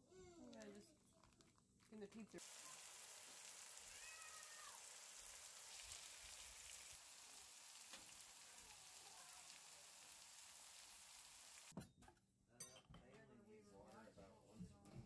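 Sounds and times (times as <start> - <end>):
food sizzling in a skillet: 2.4 - 11.7.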